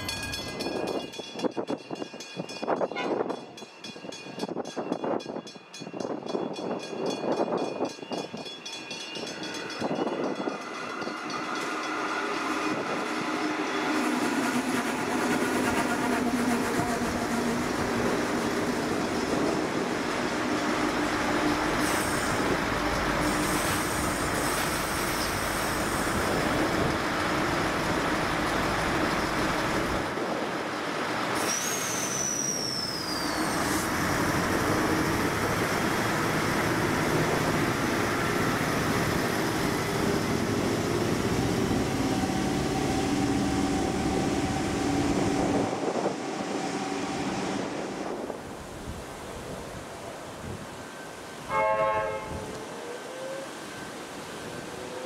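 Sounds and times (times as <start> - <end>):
train wheels on rails: 0.0 - 55.0
high squeal falling in pitch: 31.4 - 33.8.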